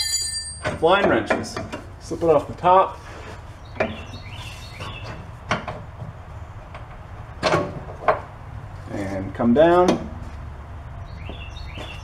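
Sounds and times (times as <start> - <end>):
knocks and clunks of shock absorber: 5.0 - 8.3.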